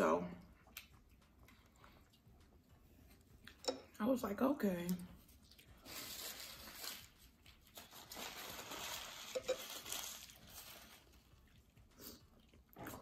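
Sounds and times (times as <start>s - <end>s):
paper napkin crinkling: 5.5s - 11.3s.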